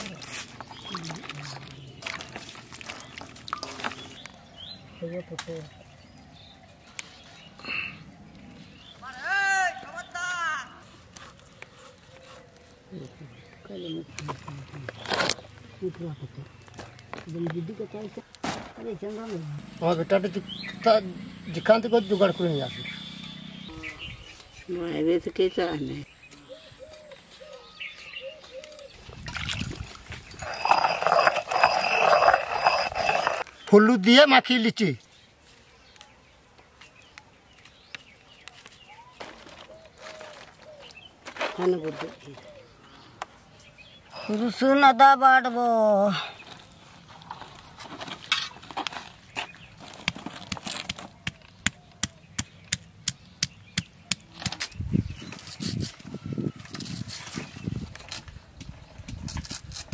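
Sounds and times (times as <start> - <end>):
stone roller scraping on stone: 29.6 - 33.5.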